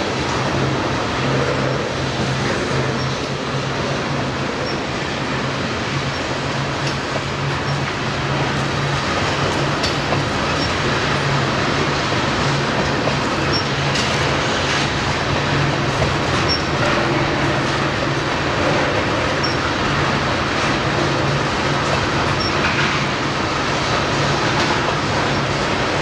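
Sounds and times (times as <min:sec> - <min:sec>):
steel wheels rumbling on rail: 0:00.0 - 0:26.0
high wheel squeaks: 0:09.6 - 0:11.4, 0:13.0 - 0:14.4, 0:16.2 - 0:17.6, 0:19.3 - 0:19.7, 0:22.3 - 0:22.7.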